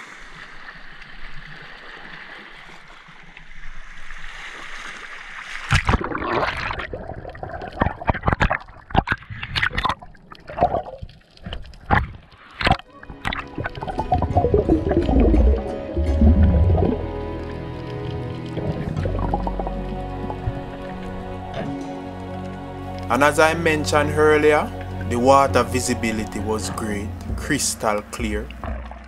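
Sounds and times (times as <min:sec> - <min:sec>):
underwater gurgling: 0:00.0 - 0:23.5, 0:27.1 - 0:29.0
sea washing over rocks: 0:00.0 - 0:29.0
underwater clicks and knocks: 0:07.5 - 0:17.0, 0:27.2 - 0:29.0.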